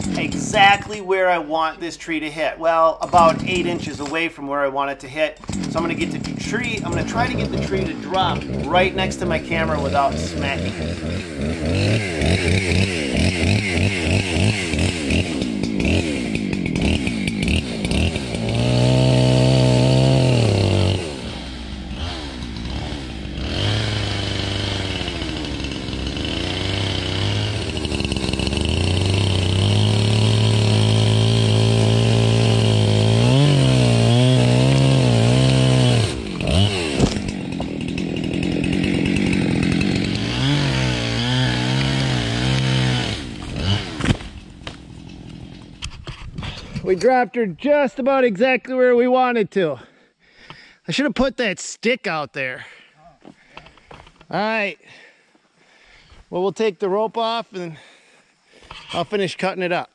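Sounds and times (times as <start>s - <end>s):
chainsaw cutting wood: 0.0s - 1.1s, 3.0s - 4.4s, 5.3s - 47.0s.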